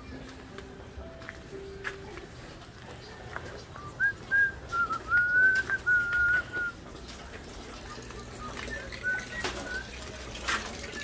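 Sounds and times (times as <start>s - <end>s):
person whistling a tune: 3.8s - 6.8s, 8.4s - 10.0s.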